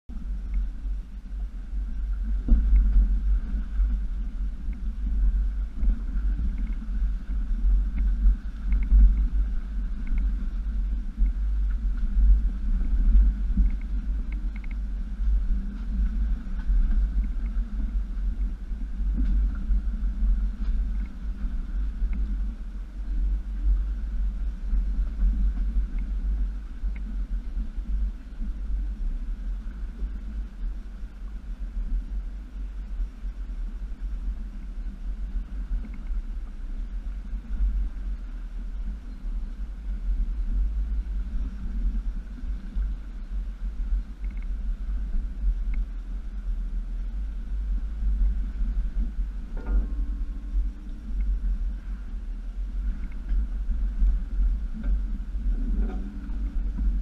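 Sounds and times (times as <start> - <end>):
engine low rumble: 0.0 - 57.0
faint clicks: 0.4 - 0.7, 2.4 - 3.9, 5.8 - 7.0, 7.8 - 22.4, 23.0 - 28.5, 34.5 - 36.3, 44.1 - 44.6, 45.6 - 46.5, 52.8 - 57.0.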